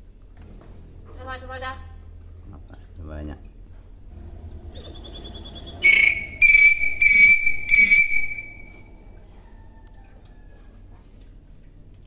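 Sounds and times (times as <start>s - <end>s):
myna whistling: 4.7s - 8.9s.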